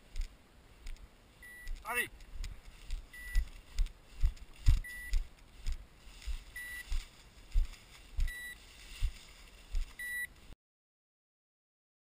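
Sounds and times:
footsteps through dry grass: 1.7 - 10.6.

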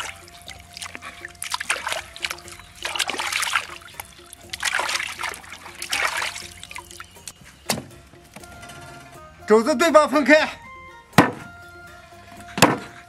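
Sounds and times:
hands scrubbing meat: 0.0 - 7.2
water sloshing in steel basin: 0.0 - 7.3
background music: 0.0 - 13.0
short thump: 7.7 - 8.0, 11.2 - 11.5, 12.6 - 12.9.

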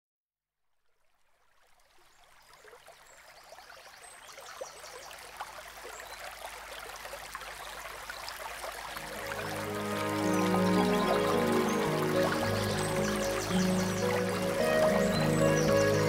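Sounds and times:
waterfall rushing over rocks: 9.0 - 16.0.

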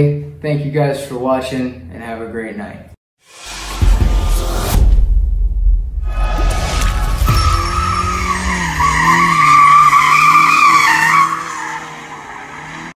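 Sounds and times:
car tyres squealing: 7.0 - 13.0.

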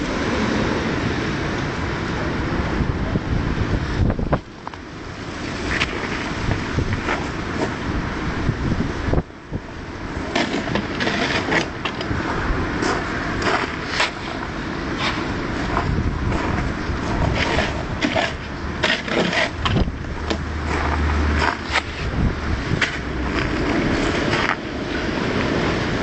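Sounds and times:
stone scraping on ground: 10.2 - 12.1, 12.8 - 24.7.

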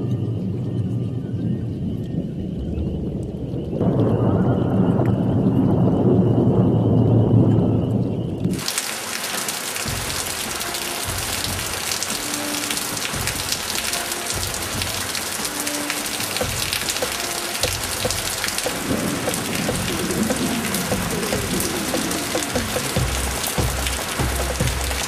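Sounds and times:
heavy rain splashing on standing water: 8.4 - 25.0.

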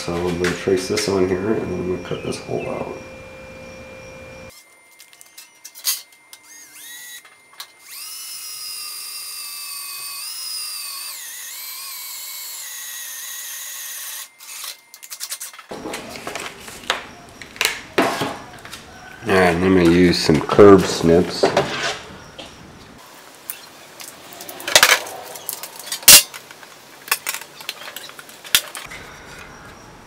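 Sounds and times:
cordless drill drilling sheet metal: 7.8 - 15.4.

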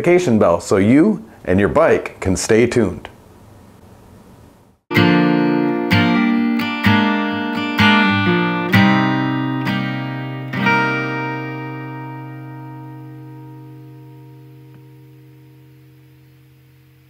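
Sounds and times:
acoustic guitar chords: 4.9 - 17.0.

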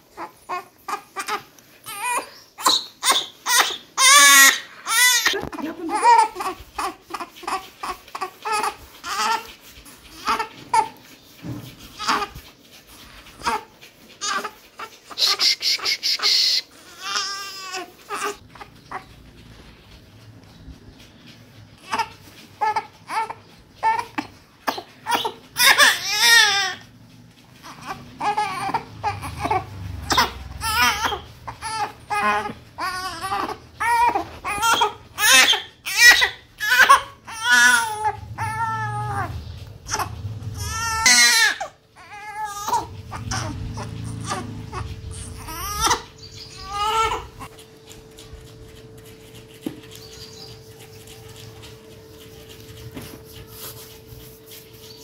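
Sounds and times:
newborn baby crying: 0.1 - 9.5, 12.0 - 12.3, 13.4 - 19.1, 21.8 - 26.8, 27.6 - 39.3, 39.9 - 47.5.

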